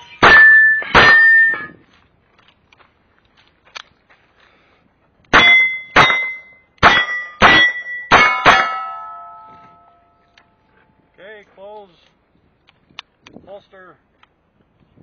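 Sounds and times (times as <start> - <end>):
steel target ringing clang: 0.0 - 1.8, 5.3 - 10.3.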